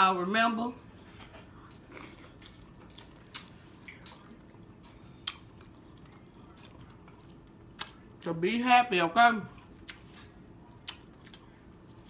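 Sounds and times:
wet chewing sounds: 1.7s - 8.2s, 9.5s - 12.0s.

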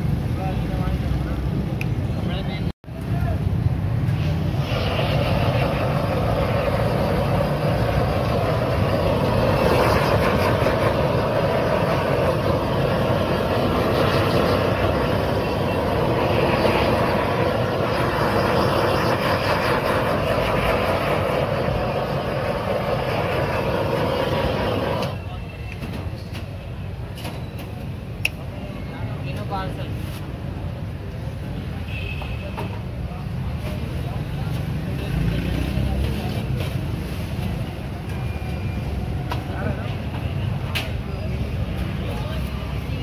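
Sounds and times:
gas blowtorch hissing: 4.0s - 25.2s.

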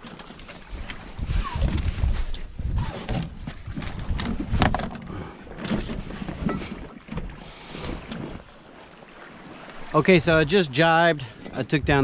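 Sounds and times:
wind buffeting microphone: 0.6s - 6.8s, 11.4s - 12.0s
knocks and clatter of gear: 3.1s - 6.6s.

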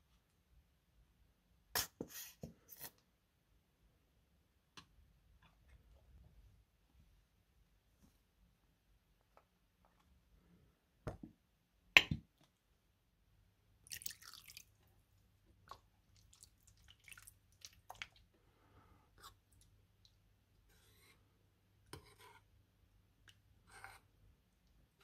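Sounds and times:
metal spoon stirring slime: 20.6s - 21.2s, 21.9s - 22.6s, 23.2s - 24.2s.

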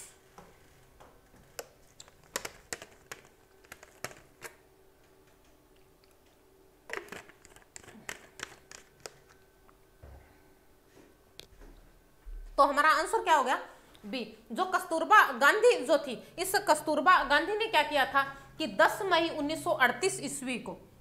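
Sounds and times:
faint steady hum: 0.0s - 21.0s
objects clicking and tapping: 0.4s - 9.4s.

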